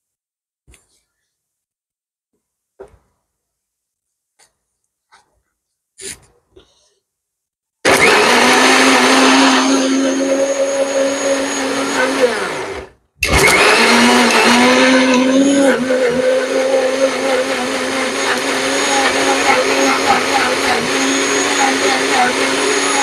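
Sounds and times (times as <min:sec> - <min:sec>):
mixer grinder running: 0:07.8 - 0:23.0.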